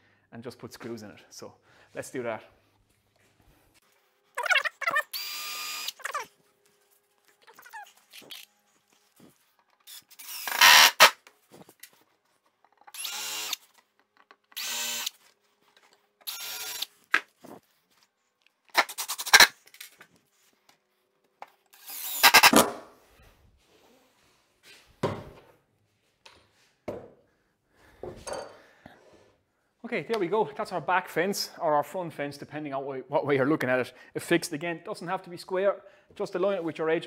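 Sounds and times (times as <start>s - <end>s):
cordless drill driving screws: 4.8s - 6.2s, 9.8s - 11.2s, 12.9s - 13.8s, 14.4s - 15.2s, 16.2s - 17.0s, 18.8s - 19.5s, 21.7s - 22.6s.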